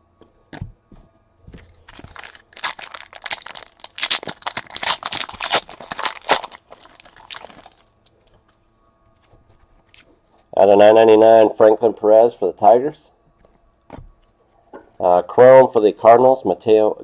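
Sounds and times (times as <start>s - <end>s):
foil wrapper tearing and crinkling: 1.8s - 7.8s.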